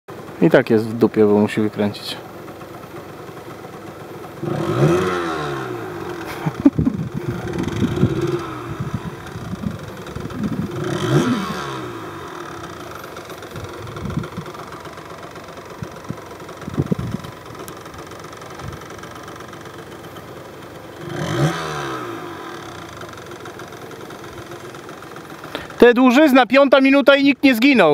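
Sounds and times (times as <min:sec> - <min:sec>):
two-stroke engine idling and revving: 0:00.1 - 0:27.9
engine pops: 0:06.0 - 0:21.5.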